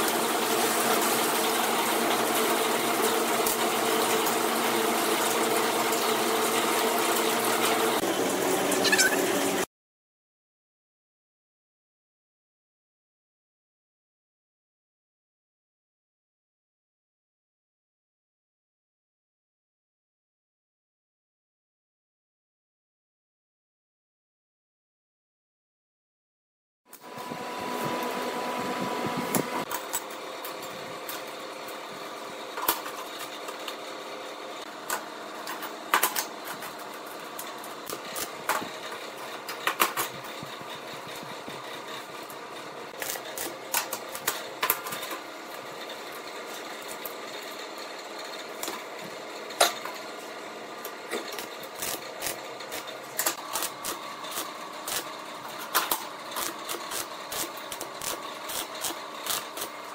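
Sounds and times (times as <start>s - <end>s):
arc welding crackles and pops: 0.0s - 4.5s, 34.6s - 59.9s
steady hum: 27.0s - 29.8s.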